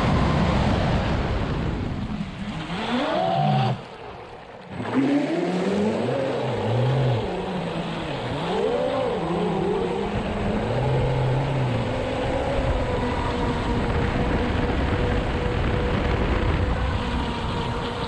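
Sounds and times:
wind noise: 0.0 - 3.9, 8.4 - 18.0
water noise: 0.0 - 18.0.

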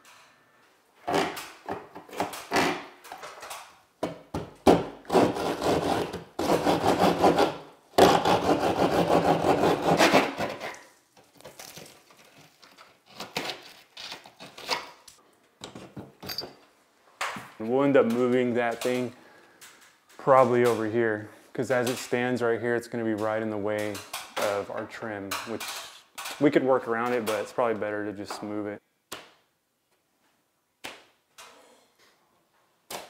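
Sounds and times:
hand saw cutting drywall: 4.7 - 10.9
knocks and handling noise: 11.1 - 20.9.

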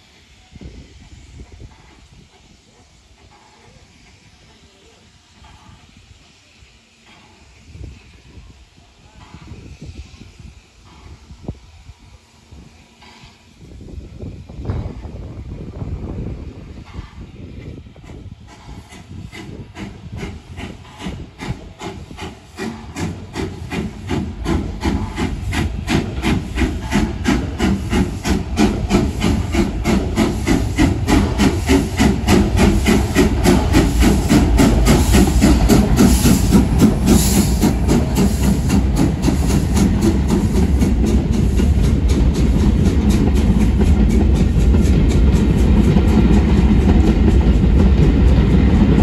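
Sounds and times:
steam hiss: 0.0 - 49.0
steam locomotive chuffing: 0.0 - 49.0.

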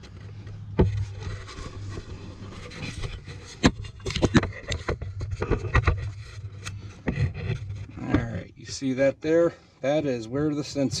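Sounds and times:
camera handling knocks and scrapes: 0.0 - 8.4
steady low hum: 0.0 - 11.0.

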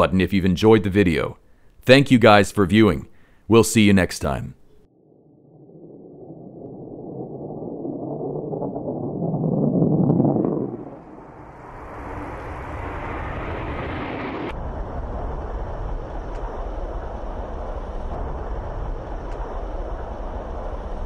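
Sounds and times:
fighter jet engine noise: 10.1 - 21.0.

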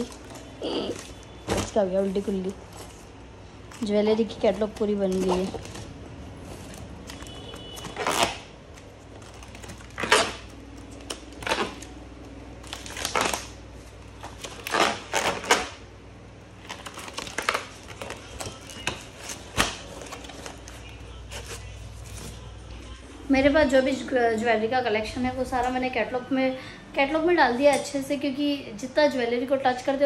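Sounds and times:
plastic binder pages turning: 0.0 - 15.9, 16.5 - 23.0.

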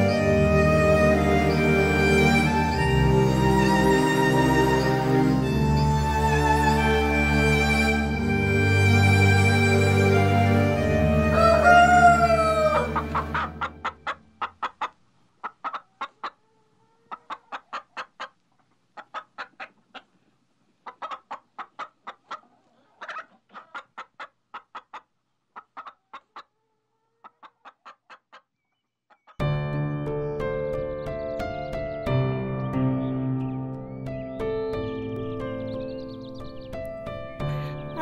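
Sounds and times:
music: 0.0 - 13.9, 29.4 - 38.0
rooster crowing: 11.2 - 13.6
chickens clucking: 11.3 - 29.4.

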